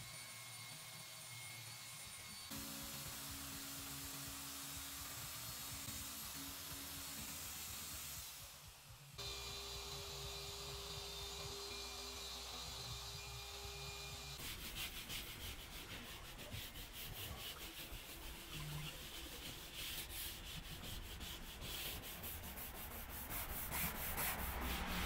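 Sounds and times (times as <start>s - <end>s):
brush scrubbing dashboard: 14.4s - 25.0s.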